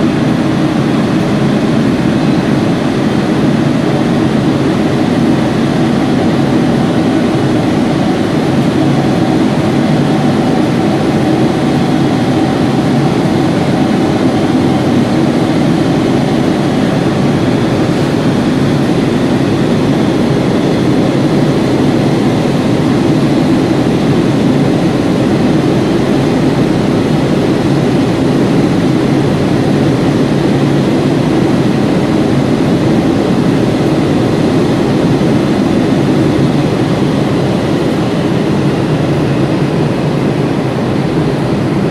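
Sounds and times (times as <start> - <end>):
muffled jet engines idling: 0.0 - 41.9.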